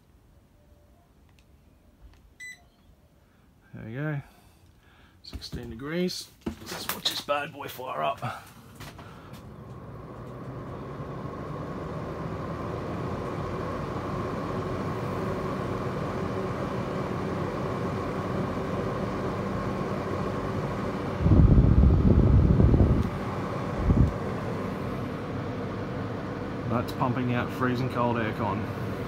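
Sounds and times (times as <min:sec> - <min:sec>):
air conditioner fan hum: 0:02.3 - 0:29.0
loud low rumble: 0:21.2 - 0:25.2.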